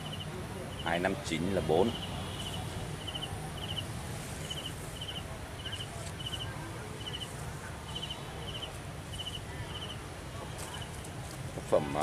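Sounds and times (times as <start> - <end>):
insect chirping: 0.0 - 1.1, 1.8 - 7.3, 7.9 - 10.0.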